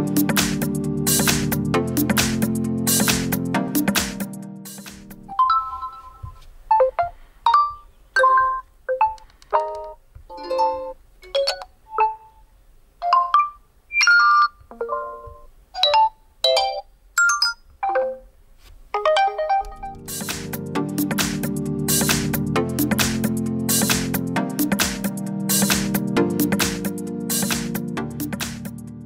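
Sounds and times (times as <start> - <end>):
electronic music: 0.0 - 5.7, 19.2 - 29.0.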